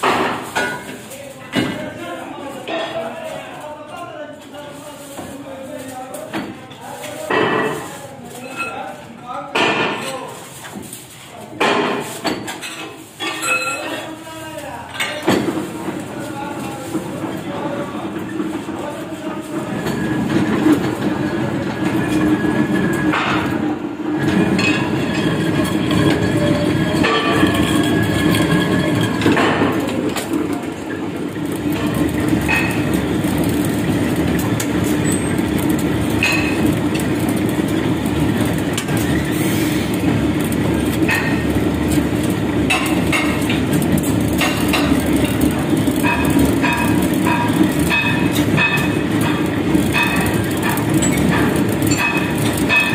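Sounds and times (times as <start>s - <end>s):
lathe rumble: 15.8s - 52.9s.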